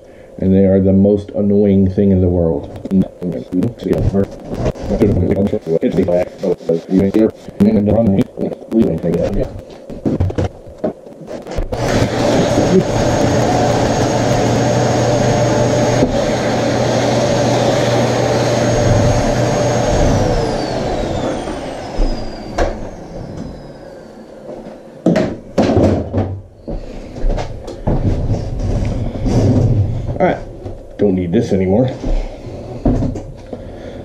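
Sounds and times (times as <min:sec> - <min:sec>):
vacuum cleaner running: 0:02.8 - 0:10.5, 0:11.5 - 0:25.1, 0:32.0 - 0:34.0
knocks and clatters: 0:09.2 - 0:12.2, 0:27.2 - 0:30.9
motor winding down whine: 0:11.6 - 0:24.8.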